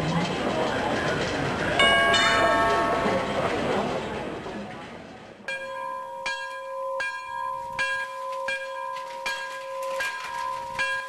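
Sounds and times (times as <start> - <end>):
church bell tolling: 1.8 - 3.9, 5.5 - 11.0.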